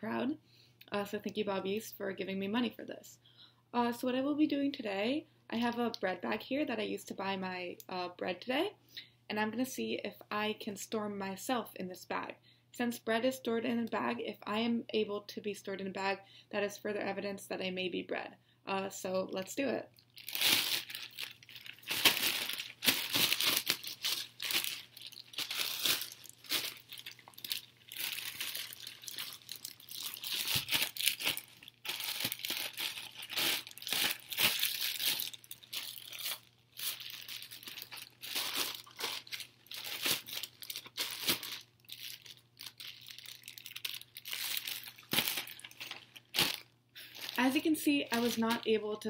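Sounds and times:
plastic bag crinkling: 20.0 - 48.7.

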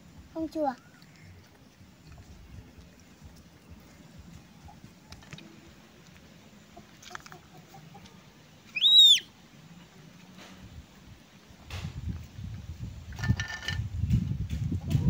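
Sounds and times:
high-pitched animal call: 8.8 - 9.3.

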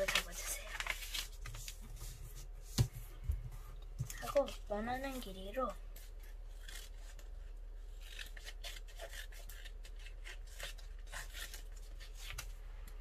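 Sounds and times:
scissors snipping paper: 0.0 - 1.4, 4.1 - 12.5
paper rustling: 0.0 - 3.0
low steady hum: 0.0 - 13.0.

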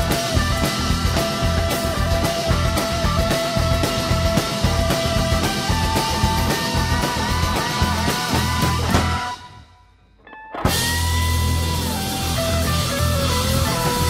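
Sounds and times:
drum kit: 0.0 - 14.0
electric guitars: 0.0 - 14.0
electric keyboard: 10.7 - 14.0.

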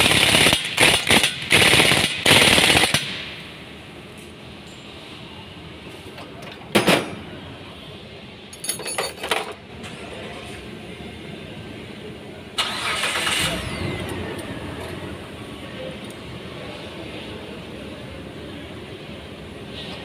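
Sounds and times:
metal tools clattering: 8.5 - 9.6
rushing machine with whine: 13.4 - 15.8.

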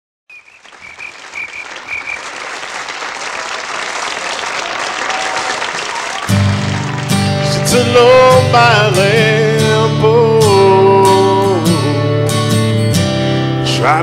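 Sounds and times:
audience applauding: 0.3 - 9.0
karaoke backing track: 6.3 - 14.0.

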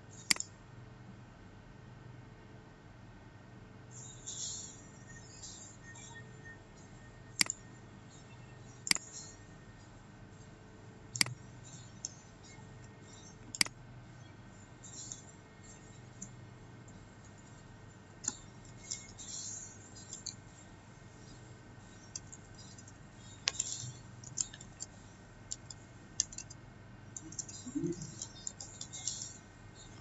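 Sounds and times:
keyboard typing: 0.2 - 0.5, 7.3 - 9.4, 11.1 - 13.8, 14.8 - 30.0.

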